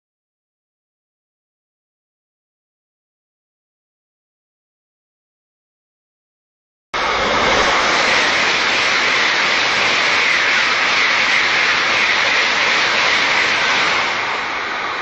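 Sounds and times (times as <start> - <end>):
train rushing past: 7.0 - 15.0.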